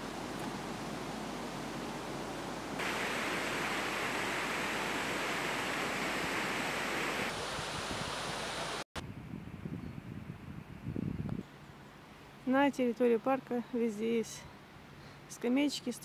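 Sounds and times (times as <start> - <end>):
water rushing over a weir: 0.0 - 8.8.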